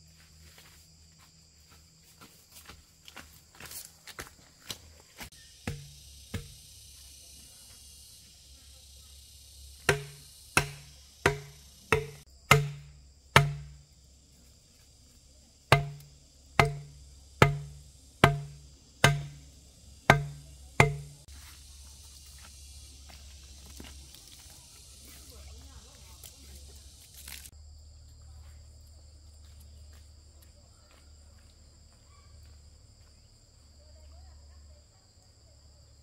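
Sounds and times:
machete knocking on bamboo stake: 5.6s - 6.6s, 9.8s - 13.9s, 15.7s - 19.5s, 20.1s - 21.3s.

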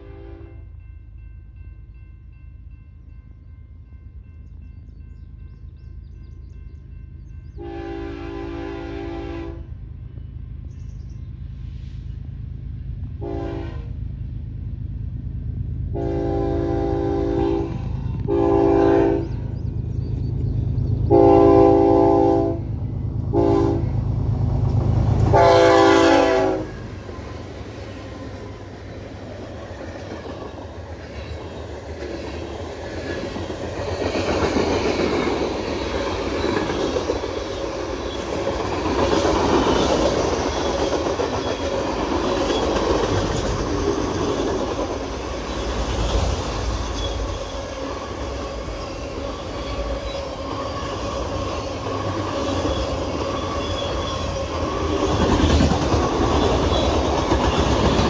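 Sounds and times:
locomotive horn: 0.0s - 0.8s, 7.6s - 9.8s, 13.2s - 14.0s, 15.9s - 19.4s, 21.1s - 24.0s, 25.2s - 26.8s
diesel locomotive engine: 0.0s - 58.0s.

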